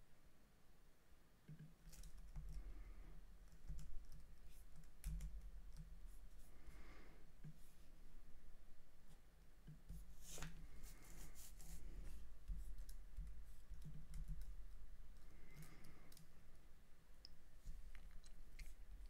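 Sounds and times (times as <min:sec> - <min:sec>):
keyboard and mouse clicking: 0:01.5 - 0:02.7, 0:03.5 - 0:05.9.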